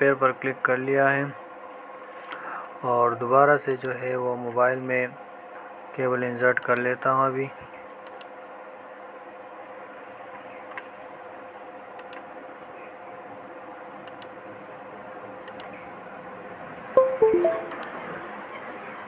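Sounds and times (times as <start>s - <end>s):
descending electronic chime: 17.0s - 17.8s.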